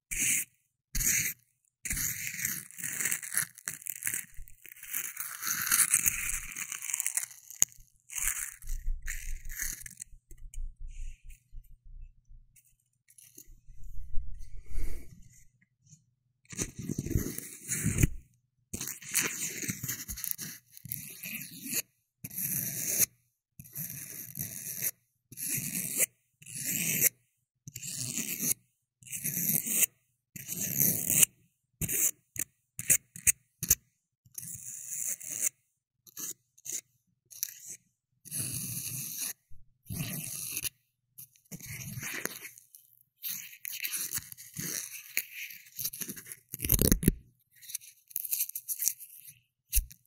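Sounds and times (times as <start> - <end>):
scraping and rubbing strokes: 0.1 - 15.6, 38.4 - 50.0.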